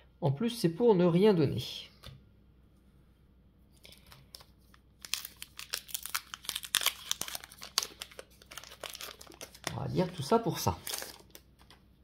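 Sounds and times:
foil wrapper crinkling and tearing: 3.8 - 11.8.

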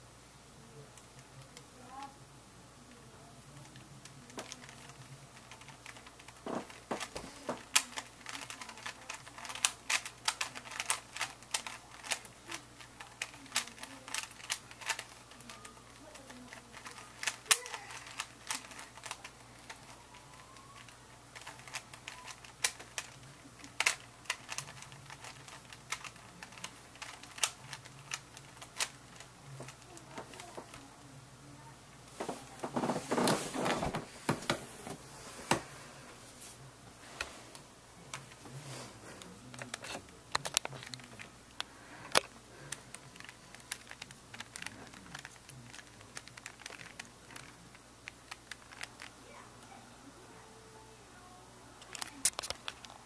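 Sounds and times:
puzzle cube twisting clicks: 3.7 - 30.6, 39.5 - 49.2.

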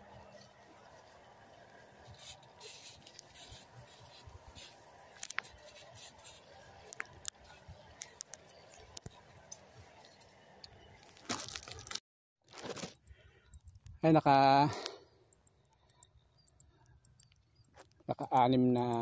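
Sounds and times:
plants rustling and scraping: 0.0 - 13.0
person wading through crop: 0.3 - 6.8
sharp ticks: 14.8 - 19.0.

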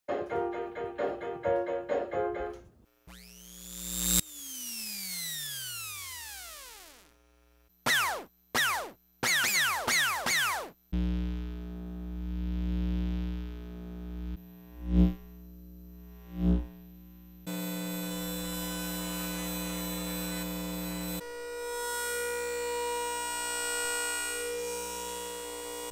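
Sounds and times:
steady electronic buzz: 2.9 - 25.9
blender electronic tones: 3.0 - 15.4, 16.0 - 25.9
steady electrical hum: 10.9 - 21.2.

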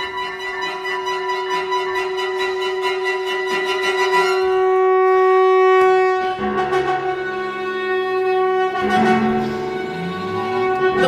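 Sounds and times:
wind instrument long note: 0.0 - 11.0
lower held notes: 4.3 - 11.0.

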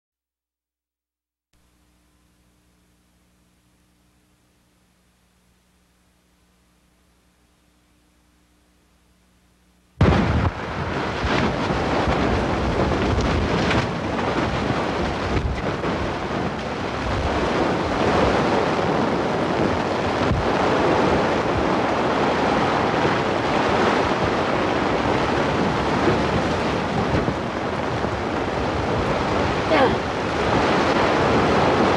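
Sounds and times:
wind rushing over microphone: 10.0 - 31.9
plastic tarp flapping: 10.2 - 31.9.

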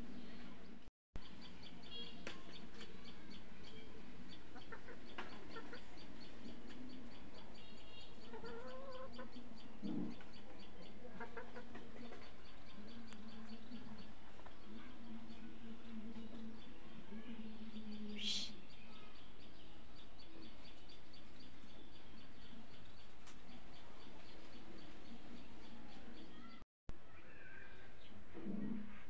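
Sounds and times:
chickens clucking: 2.2 - 16.7.

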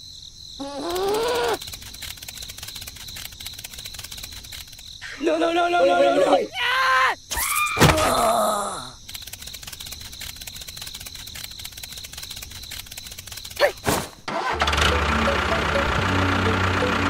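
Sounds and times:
fast light ticking: 0.9 - 5.0, 9.0 - 13.6.

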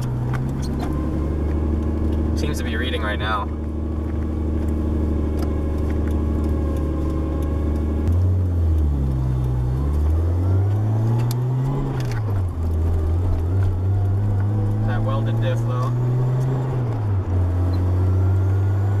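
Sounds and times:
car engine revving: 0.0 - 19.0.

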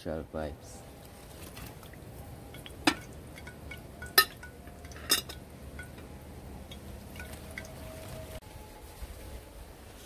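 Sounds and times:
utensil clinking on cooking pot: 2.5 - 7.8.

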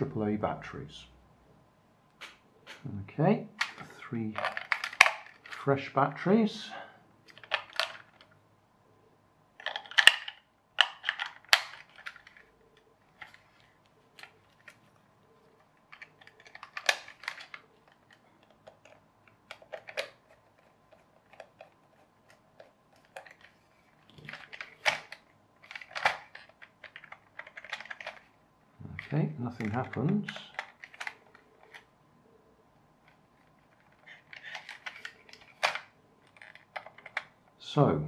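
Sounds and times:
hard plastic clicks and scrapes: 13.1 - 28.3, 29.0 - 31.9, 33.1 - 37.4.

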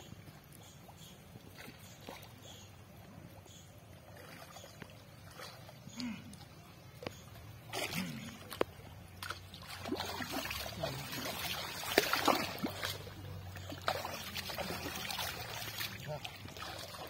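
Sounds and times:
water splashing from net: 7.6 - 17.0.

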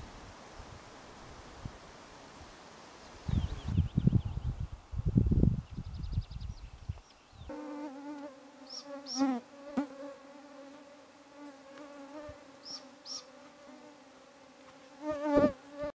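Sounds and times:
wind buffeting microphone: 3.2 - 7.5
flying insect buzzing: 7.5 - 15.9
small bird chirping: 8.7 - 9.4, 12.6 - 13.4.

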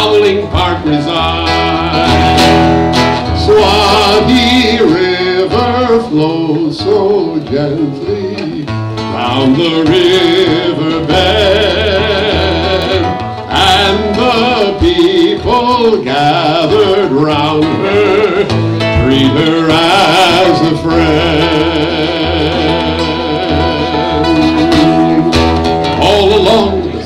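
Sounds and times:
acoustic guitar playing: 0.0 - 27.0
man singing: 0.0 - 27.0.

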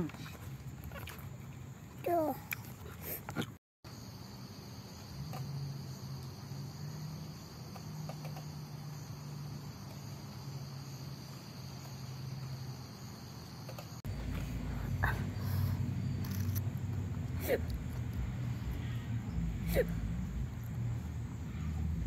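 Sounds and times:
crickets trilling: 3.9 - 22.0
faint low hum: 13.7 - 22.0.

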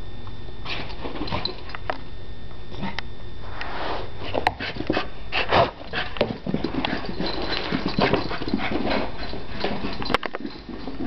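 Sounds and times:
dog claws clicking on floor: 5.9 - 11.0.

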